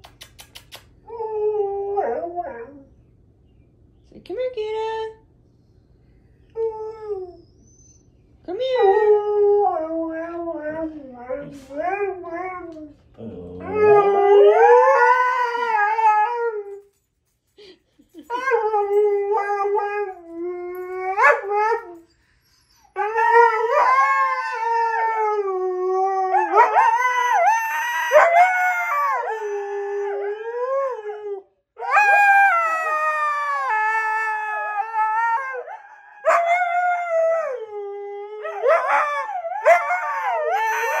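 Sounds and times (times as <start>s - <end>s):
dogs howling: 8.9s - 16.8s, 23.0s - 41.0s.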